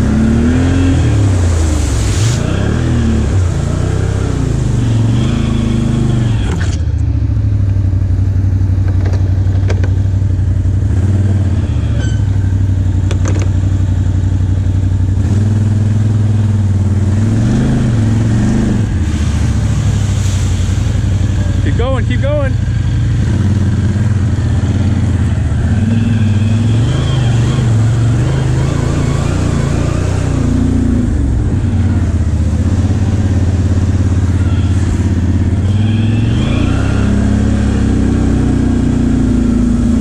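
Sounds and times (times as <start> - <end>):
atv engine revving: 0.0 - 40.0
water splashing spray: 0.4 - 5.2, 18.8 - 21.7.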